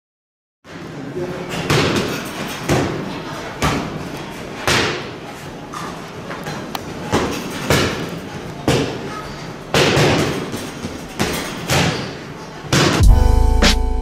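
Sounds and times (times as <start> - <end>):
boxing gloves smacking mitts: 9.7 - 13.0.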